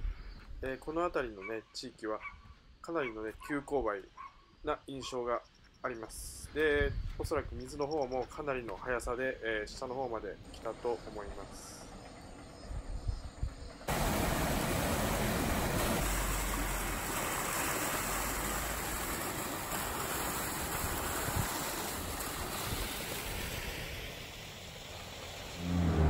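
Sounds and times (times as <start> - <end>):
water rushing over a low step: 13.9 - 26.0.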